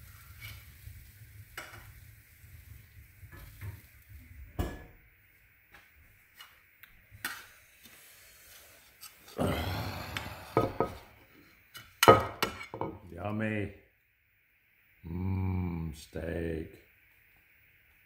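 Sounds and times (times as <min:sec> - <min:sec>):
steak sizzling: 0:00.0 - 0:04.8, 0:06.2 - 0:12.9.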